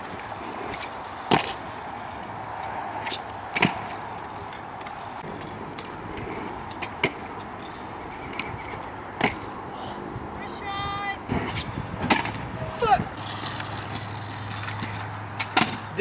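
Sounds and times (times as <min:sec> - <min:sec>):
scooter wheels rolling on asphalt: 0:00.0 - 0:16.0
scooter deck clacking on landings: 0:13.4 - 0:16.0.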